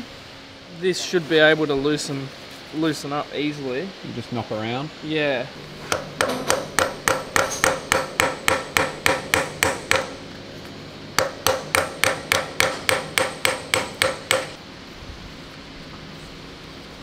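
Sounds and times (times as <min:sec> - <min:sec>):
hammer tapping on metal: 0:05.8 - 0:10.2, 0:11.2 - 0:14.6.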